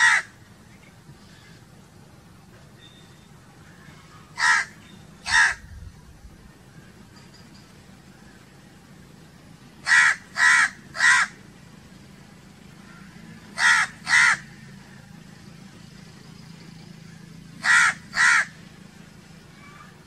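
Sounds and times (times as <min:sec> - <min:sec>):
crows cawing: 0:00.0 - 0:00.4, 0:04.4 - 0:05.6, 0:09.8 - 0:11.4, 0:13.5 - 0:14.5, 0:17.6 - 0:18.6.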